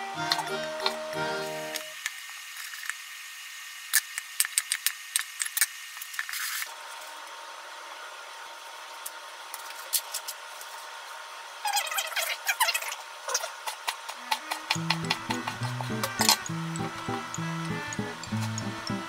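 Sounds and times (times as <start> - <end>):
steady hum: 14.7 - 19.0.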